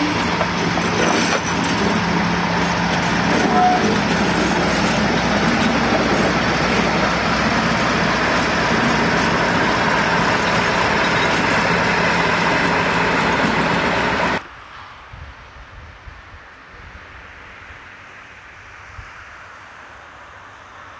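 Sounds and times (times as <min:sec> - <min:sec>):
diesel locomotive engine running: 0:00.0 - 0:14.4.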